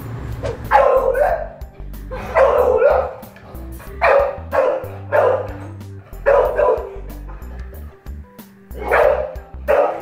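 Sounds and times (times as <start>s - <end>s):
background music: 0.0s - 10.0s
dog barking loudly: 0.6s - 1.6s, 2.2s - 3.3s, 4.0s - 7.3s, 8.7s - 10.0s.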